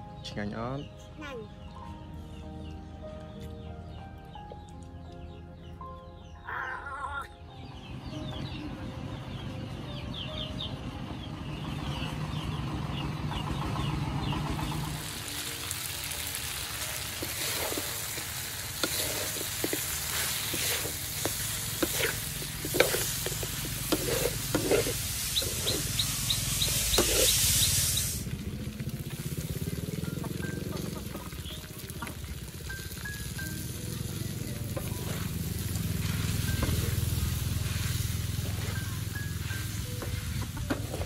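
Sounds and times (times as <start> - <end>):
meat sizzling: 14.9 - 41.0
metal spatula scraping wok: 17.2 - 28.2.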